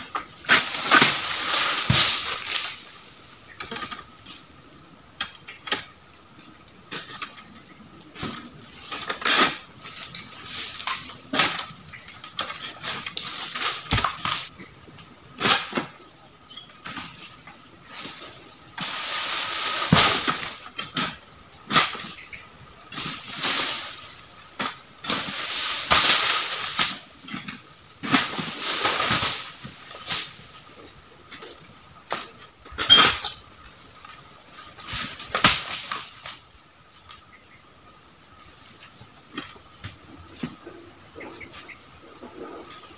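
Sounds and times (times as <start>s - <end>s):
sickle knocking and rustling fronds: 0.0s - 4.4s, 6.8s - 14.8s, 16.8s - 37.4s
high-pitched insect drone: 0.0s - 42.9s.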